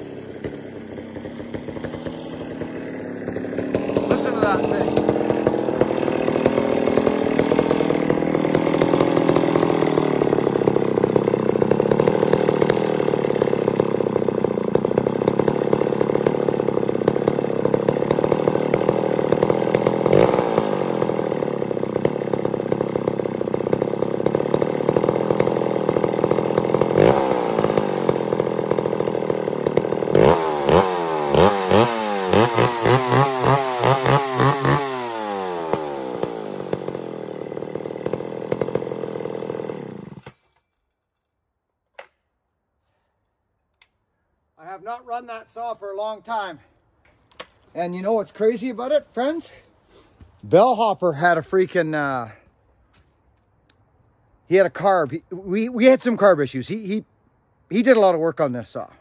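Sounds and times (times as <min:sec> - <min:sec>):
chainsaw engine revving: 0:00.0 - 0:40.5, 0:47.7 - 0:52.5.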